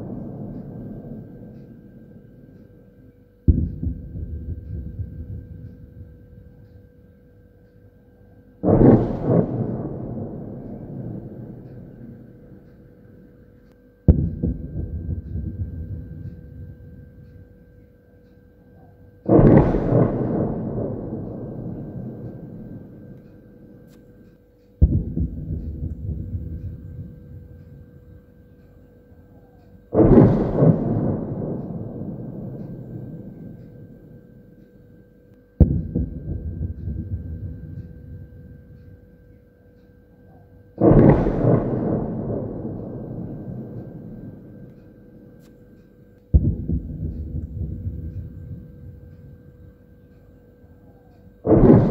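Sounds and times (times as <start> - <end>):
explosion rumble: 0.0 - 2.6, 3.5 - 6.7, 8.6 - 13.0, 14.1 - 17.3, 19.2 - 24.0, 24.8 - 28.0, 29.9 - 34.3, 35.6 - 38.8, 40.8 - 45.5, 46.3 - 49.5, 51.5 - 51.9
artillery blasts echoing: 0.0 - 2.7, 3.4 - 7.0, 8.6 - 13.2, 14.1 - 17.4, 19.2 - 28.5, 29.9 - 34.6, 35.6 - 39.0, 40.8 - 45.5, 46.3 - 49.9, 51.4 - 51.9.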